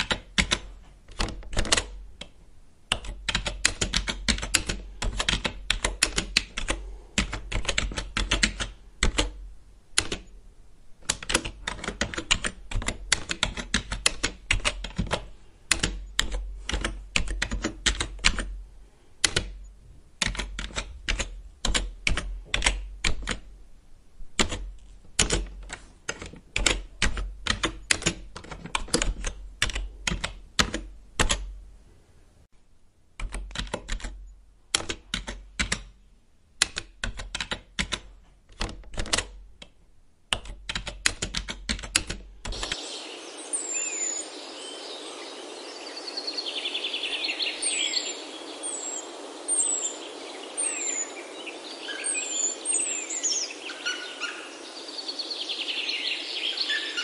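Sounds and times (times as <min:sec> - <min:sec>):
woodpecker pecking at wood: 0:11.0 - 0:18.5, 0:40.3 - 0:42.8.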